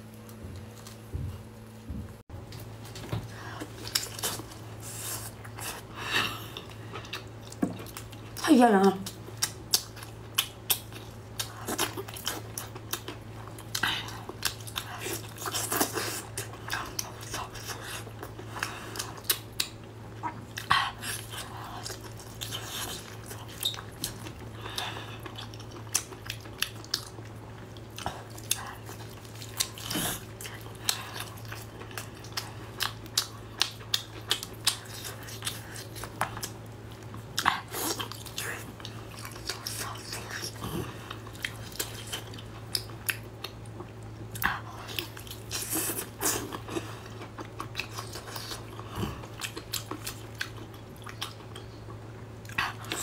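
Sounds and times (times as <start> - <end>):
steady low hum: 0.0 - 53.0
person chewing wet food: 2.5 - 8.4, 9.0 - 53.0.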